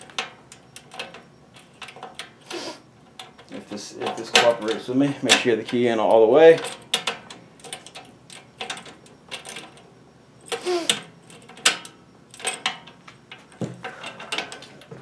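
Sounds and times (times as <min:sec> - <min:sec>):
metallic clicks and clunks: 0:00.0 - 0:02.4, 0:03.1 - 0:09.9, 0:10.5 - 0:15.0
key turning in safe lock: 0:06.5 - 0:09.8.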